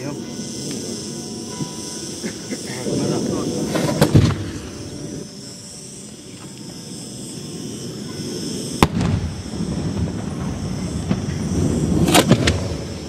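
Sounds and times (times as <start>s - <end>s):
firework bangs: 1.5s - 5.2s, 8.3s - 13.0s.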